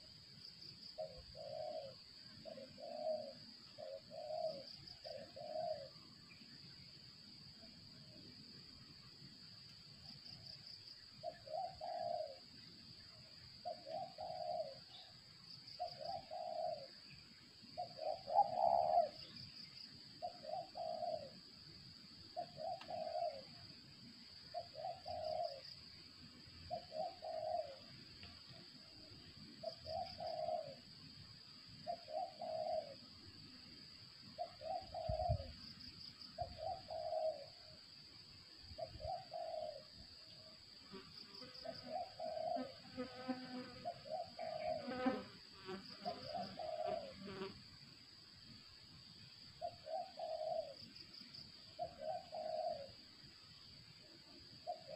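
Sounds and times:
dove cooing: 0:01.0 - 0:06.0, 0:11.2 - 0:12.5, 0:13.6 - 0:15.1, 0:15.8 - 0:16.9, 0:17.8 - 0:19.4, 0:20.2 - 0:21.4, 0:22.4 - 0:23.6, 0:24.5 - 0:25.6, 0:26.7 - 0:27.9, 0:29.6 - 0:30.8, 0:31.8 - 0:33.0, 0:34.4 - 0:35.6, 0:36.4 - 0:37.7, 0:38.7 - 0:39.9, 0:41.6 - 0:45.2, 0:46.0 - 0:47.5, 0:49.6 - 0:50.8, 0:51.8 - 0:53.0, 0:54.6 - 0:54.9
high insect buzz: 0:40.4 - 0:49.6.

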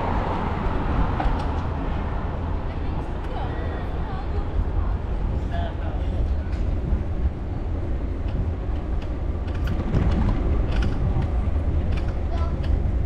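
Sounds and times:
road noise: 0:00.0 - 0:13.0
wind buffeting microphone: 0:00.0 - 0:13.0
light clicks and rattles: 0:08.2 - 0:12.8.

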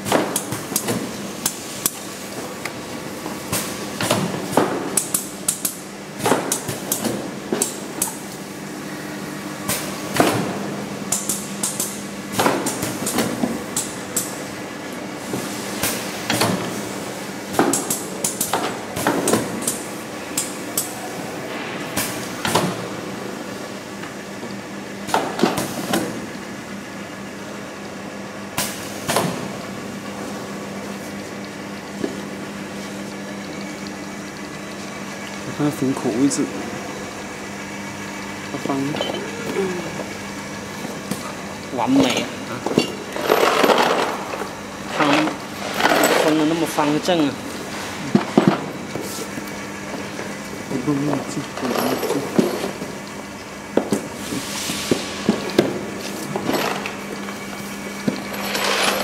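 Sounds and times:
conveyor motor humming: 0:00.0 - 0:59.0
machine humming: 0:29.5 - 0:59.0.

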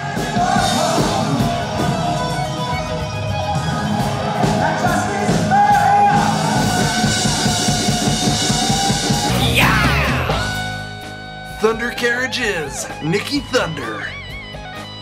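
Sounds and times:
rock band playing: 0:00.0 - 0:15.0
person singing: 0:09.3 - 0:10.6.

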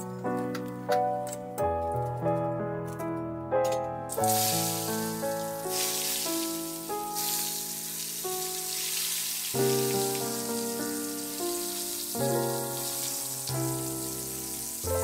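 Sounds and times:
food sizzling in hot oil: 0:04.1 - 0:15.0.

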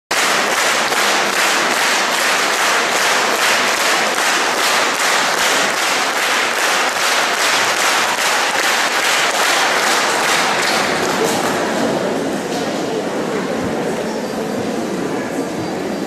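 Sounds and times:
audience applauding: 0:00.1 - 0:11.7.

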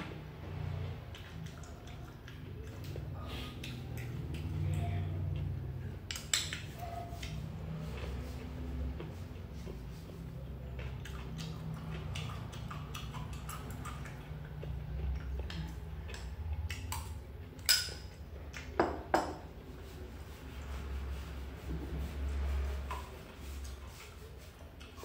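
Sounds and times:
metal spoon clinking on porcelain bowl: 0:17.6 - 0:18.2
knocks on bowl: 0:18.8 - 0:19.4.

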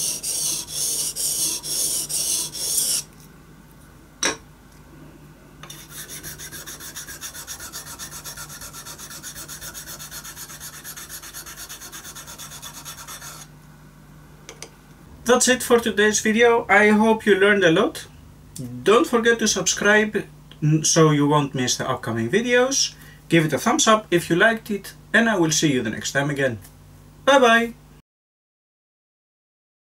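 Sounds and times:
rubbing on sharpening stone: 0:00.0 - 0:03.1, 0:05.7 - 0:13.5
small stone rubbing rapidly: 0:00.0 - 0:03.1, 0:05.7 - 0:13.5.

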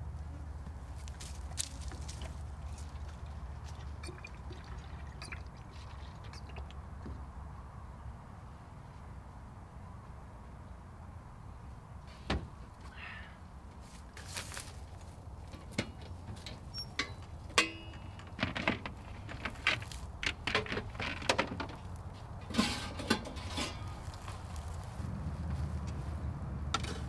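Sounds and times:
items clattering in metal compartment: 0:15.6 - 0:23.9.

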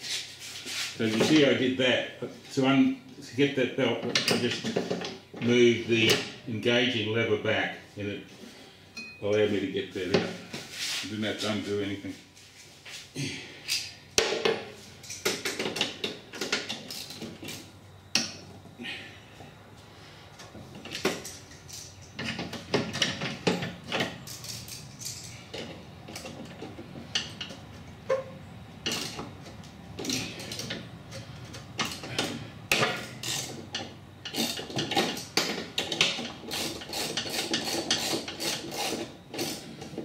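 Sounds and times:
metal tools clinking on metal: 0:23.0 - 0:25.6.

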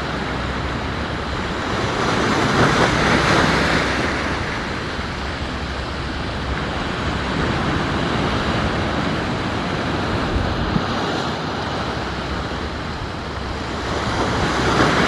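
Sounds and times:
ocean surf on rocky shore: 0:00.0 - 0:15.0
wind noise on microphone: 0:00.0 - 0:15.0.

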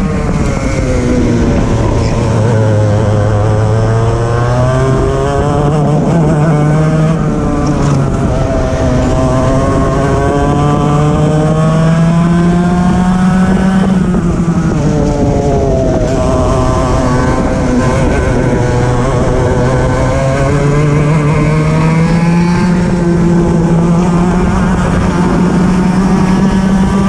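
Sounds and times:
racing kart engine revving: 0:00.0 - 0:27.0.

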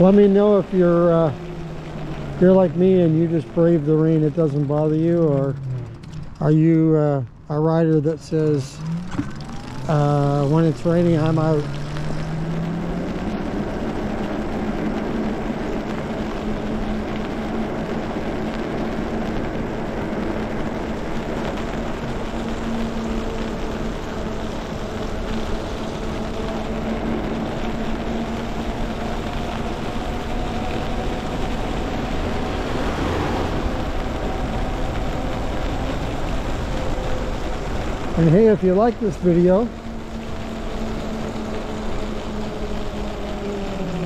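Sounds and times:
tyres hissing on wet road: 0:00.0 - 0:44.0
electric motor whine: 0:08.8 - 0:44.0.

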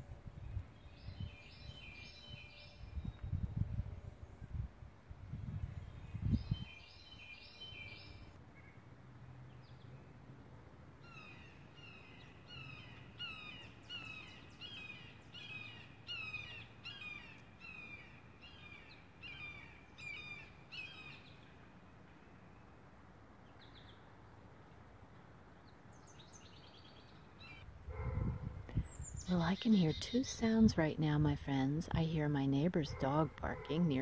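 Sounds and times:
distant dog barking: 0:27.9 - 0:28.6, 0:32.9 - 0:33.9.

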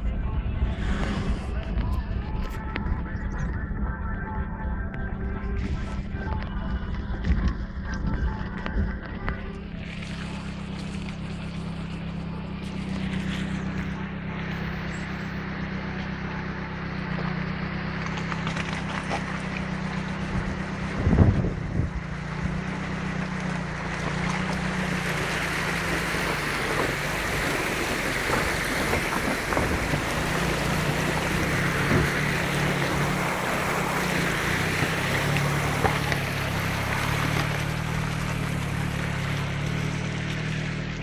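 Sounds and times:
floodwater rushing over road ford: 0:05.7 - 0:41.0
wind buffeting microphone: 0:20.2 - 0:22.2, 0:26.3 - 0:35.1.

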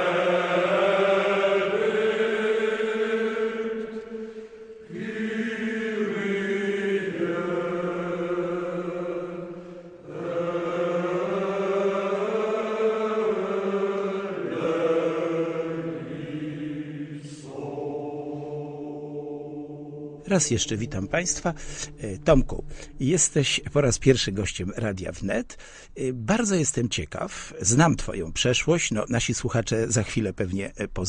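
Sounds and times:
voices chanting long notes: 0:00.0 - 0:22.2.

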